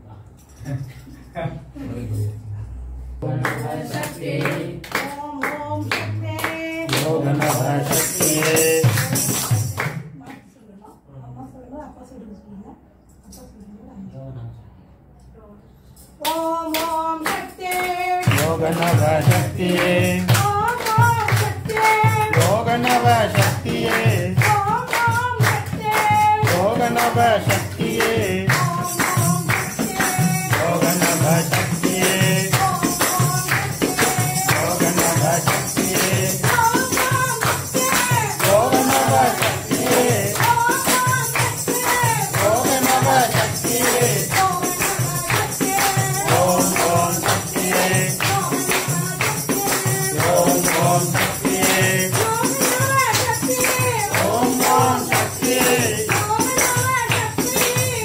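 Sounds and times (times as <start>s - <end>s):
tambourine beat: 7.0s - 10.0s, 18.2s - 58.0s
woman singing chanted melody: 16.2s - 58.0s.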